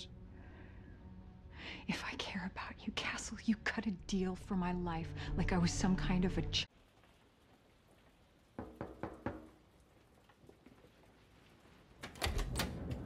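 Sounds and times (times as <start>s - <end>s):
rain: 6.4s - 13.0s
knocking on a door: 8.6s - 9.5s.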